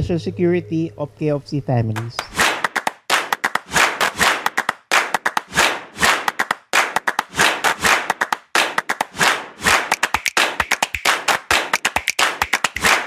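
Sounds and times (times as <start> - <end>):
clap-like percussive beat: 2.0 - 13.0.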